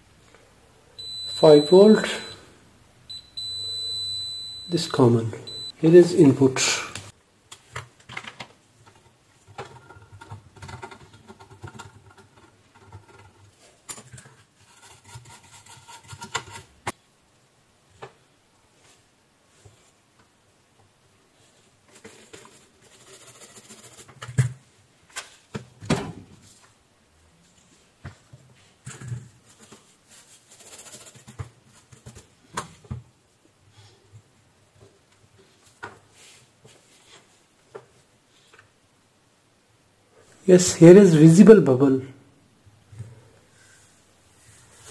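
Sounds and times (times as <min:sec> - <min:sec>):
small brush scrubbing: 0:21.5 - 0:24.2, 0:29.5 - 0:31.3
brush scrubbing circuit board: 0:22.0 - 0:24.2.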